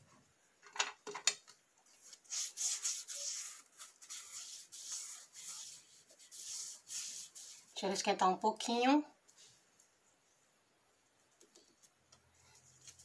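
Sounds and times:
stick scratching foam sheet: 2.0 - 7.7.

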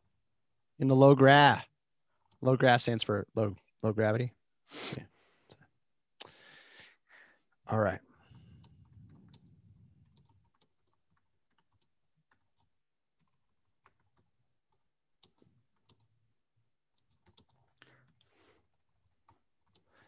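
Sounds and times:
keyboard typing: 8.3 - 20.0.

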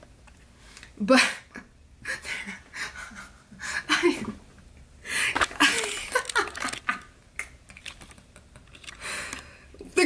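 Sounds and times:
woman giggling: 1.1 - 4.4, 5.5 - 7.2.

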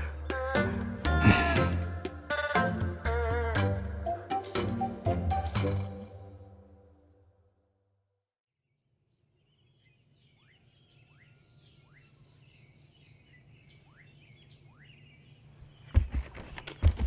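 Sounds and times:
birds chirping: 9.2 - 17.0
soft thumps and rustling: 15.9 - 17.0.

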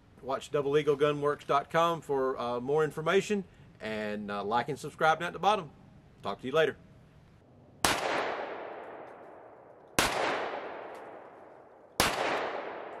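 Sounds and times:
gunshots echoing: 7.8 - 13.0.

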